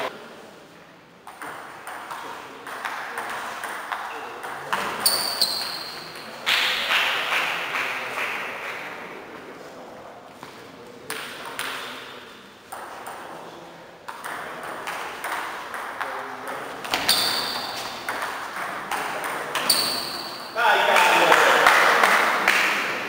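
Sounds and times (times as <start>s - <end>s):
table tennis ball hits: 1.3s - 7.5s, 11.1s - 12.1s, 14.1s - 20.6s.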